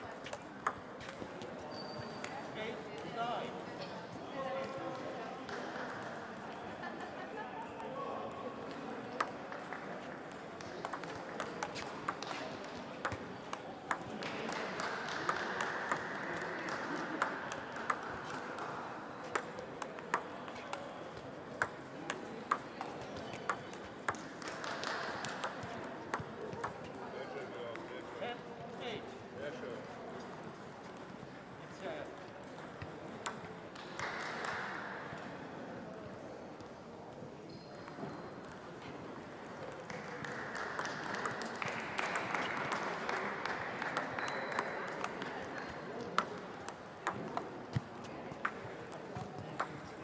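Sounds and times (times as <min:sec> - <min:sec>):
murmur of sports hall: 0:00.0 - 0:50.0
table tennis balls clicking: 0:00.2 - 0:01.3, 0:08.7 - 0:27.0, 0:32.4 - 0:34.5, 0:37.8 - 0:50.0.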